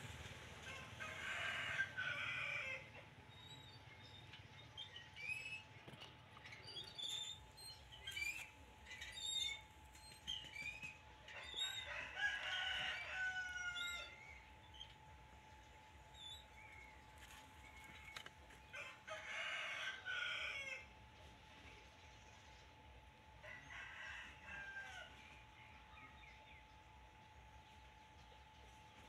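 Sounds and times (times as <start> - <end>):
faint steady whine: 0.0 - 29.0
rooster crowing: 0.6 - 2.9, 11.3 - 14.2, 18.7 - 20.9, 23.4 - 25.2.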